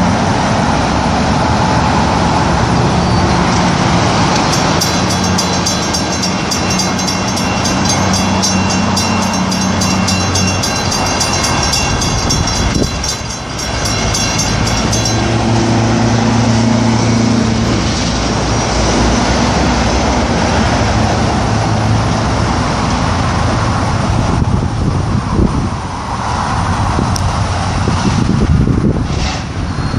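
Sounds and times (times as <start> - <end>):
railroad crossing bell dinging: 3.7 - 17.5.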